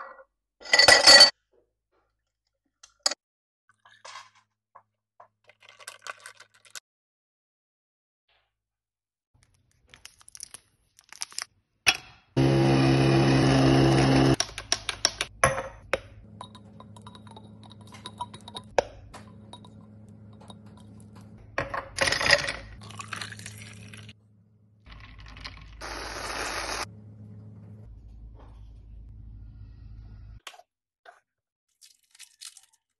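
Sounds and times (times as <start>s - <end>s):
coffee machine running: 12.4s - 14.4s, 16.2s - 24.1s, 25.1s - 27.9s
glassy clinks and taps: 16.4s - 18.7s
coffee streaming into glass: 22.8s - 24.1s.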